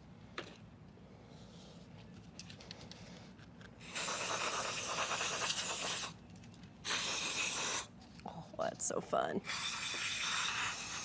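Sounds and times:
faint handling clicks and rustles: 0:00.4 - 0:03.8, 0:06.2 - 0:06.8
aerosol spray hiss: 0:03.8 - 0:06.1, 0:06.9 - 0:07.9, 0:09.4 - 0:11.0.

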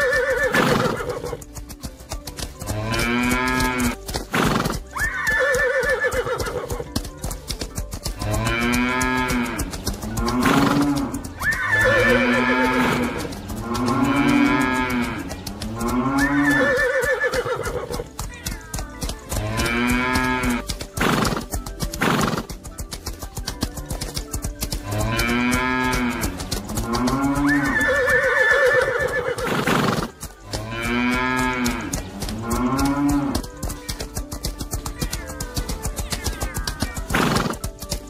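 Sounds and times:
horses whinnying: 0:00.0 - 0:38.0
cattle mooing: 0:02.6 - 0:04.0, 0:08.1 - 0:16.8, 0:19.3 - 0:20.7, 0:24.8 - 0:28.0, 0:30.5 - 0:33.5.

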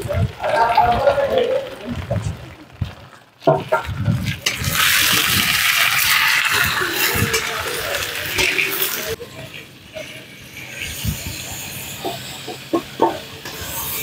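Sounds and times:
meat sizzling in hot oil: 0:04.4 - 0:09.2.

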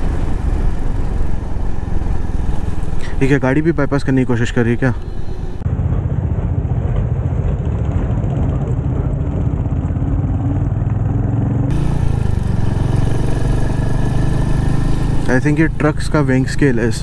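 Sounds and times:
single-cylinder motorcycle engine: 0:07.6 - 0:17.0.

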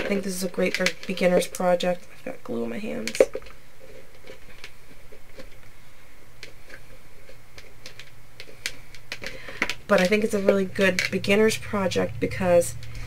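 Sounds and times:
faint clicks and rope rustles: 0:03.1 - 0:11.2.

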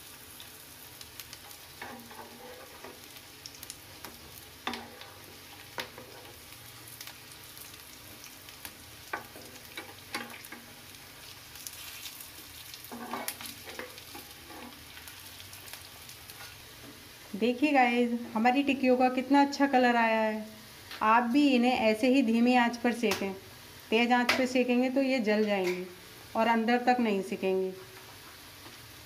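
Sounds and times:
food sizzling in oil: 0:00.0 - 0:29.0
steel spatula scraping pan: 0:12.9 - 0:14.8.

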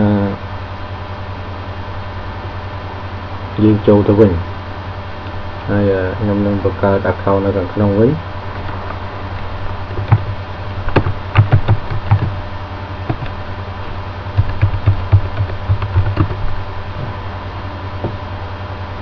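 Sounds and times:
steady low hum: 0:00.0 - 0:19.0
keyboard typing clicks: 0:10.9 - 0:12.4, 0:13.1 - 0:13.4, 0:14.4 - 0:16.4.

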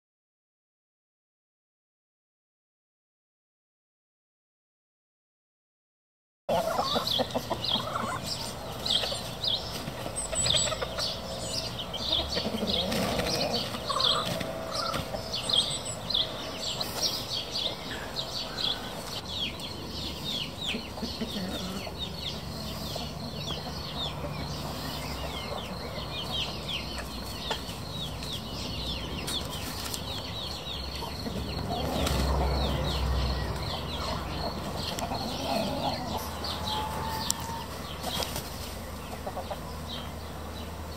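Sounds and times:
chickens clucking softly: 0:06.5 - 0:15.6, 0:17.0 - 0:32.9, 0:33.5 - 0:40.8
small birds chirping: 0:06.5 - 0:40.9.

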